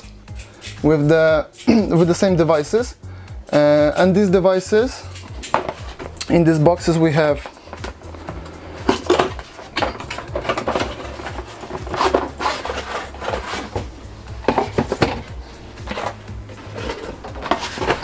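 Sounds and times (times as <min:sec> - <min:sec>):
cardboard box handling: 0:07.4 - 0:18.0.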